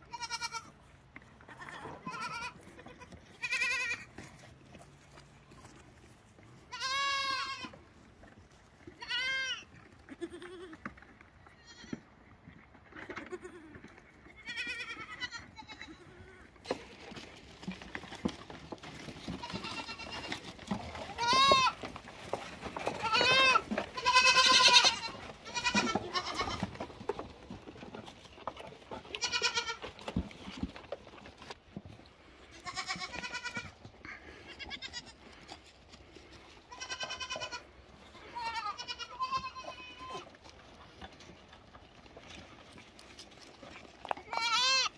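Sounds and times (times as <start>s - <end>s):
goat kids bleating: 0.0s - 0.8s, 1.4s - 4.3s, 6.5s - 7.8s, 8.8s - 12.1s, 12.9s - 17.0s, 19.2s - 27.0s, 28.5s - 30.1s, 32.4s - 35.6s, 36.3s - 40.4s, 44.1s - 44.9s.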